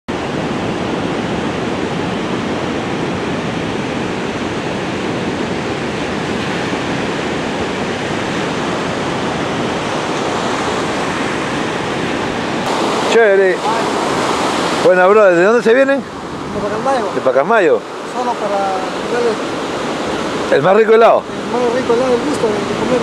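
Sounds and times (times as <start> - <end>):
ocean surf breaking: 0.1 - 23.0
wind: 0.1 - 23.0.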